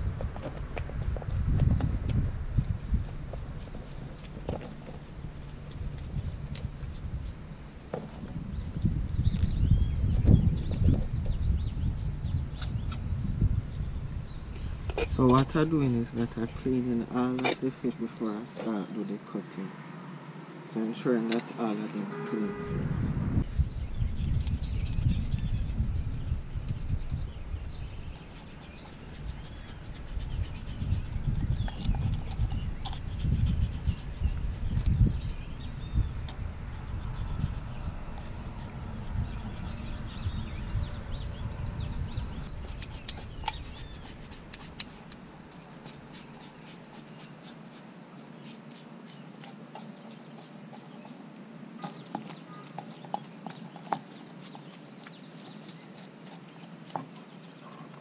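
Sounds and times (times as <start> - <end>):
birds chirping: 0.0 - 58.0
low rumble: 22.0 - 24.2, 34.3 - 42.6.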